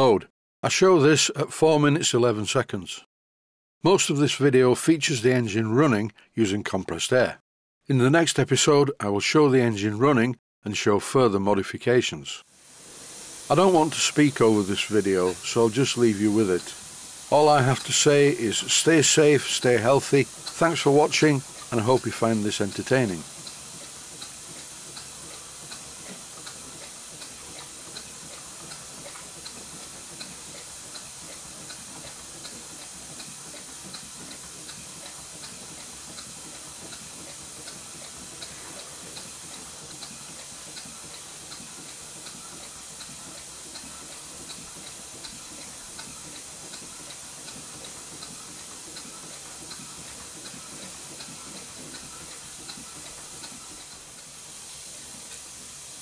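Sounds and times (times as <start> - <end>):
hiss of exhausting air: 12.5 - 56.0
steam engine running on air: 12.5 - 56.0.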